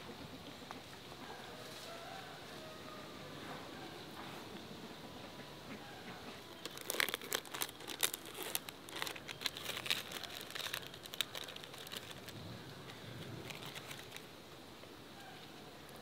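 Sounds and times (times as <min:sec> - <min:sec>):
plastic wrapper crinkling: 0:06.5 - 0:14.3.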